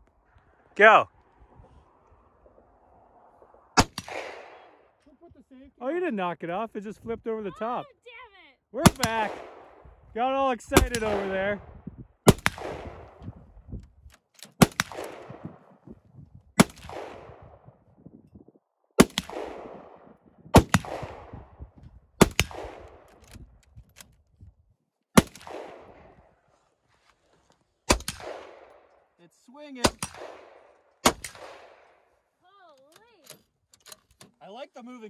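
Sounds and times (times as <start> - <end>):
rifle shots with echo: 3.8 - 4.9, 8.8 - 10.0, 10.7 - 11.7, 12.3 - 13.4, 14.5 - 15.8, 16.6 - 17.6, 19.0 - 23.2, 25.2 - 26.3, 27.9 - 29.0, 29.8 - 32.1.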